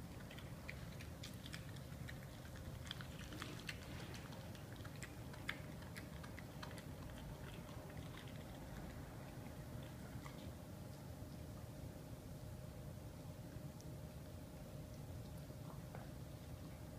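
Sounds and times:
dog chewing: 0:00.0 - 0:11.4
faint low hum: 0:00.0 - 0:16.9.

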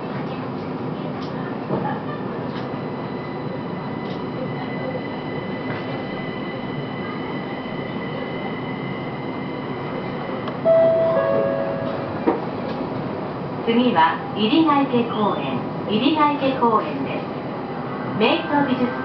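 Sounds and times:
train running hum: 0:00.0 - 0:19.0
chime tone: 0:10.7 - 0:12.2.

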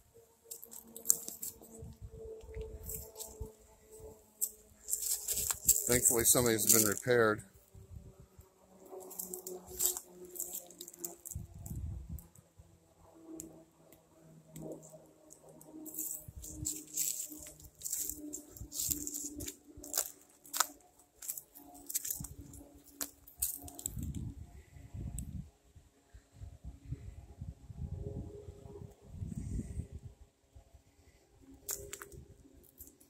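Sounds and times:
footsteps crunching on dry leaves: 0:00.5 - 0:01.8, 0:02.8 - 0:03.4, 0:04.4 - 0:07.2, 0:09.0 - 0:11.4, 0:15.8 - 0:24.0.

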